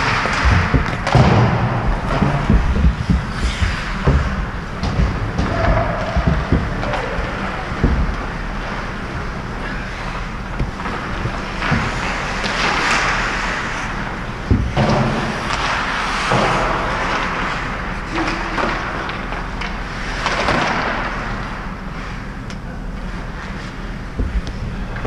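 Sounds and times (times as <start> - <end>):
skate blades scraping ice: 0.0 - 7.7, 9.6 - 14.0
low hum: 0.0 - 17.9
hockey sticks and puck clacking: 0.0 - 22.1.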